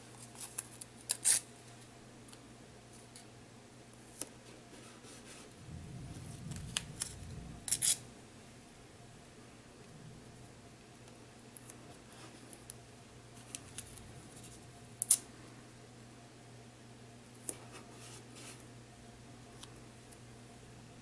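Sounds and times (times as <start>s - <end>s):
sharp crackle of foil: 0.2s - 1.5s, 6.5s - 8.0s.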